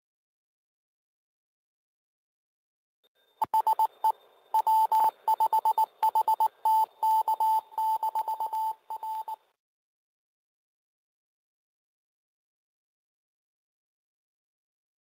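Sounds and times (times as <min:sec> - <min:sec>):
morse code beeps: 0:03.4 - 0:09.4.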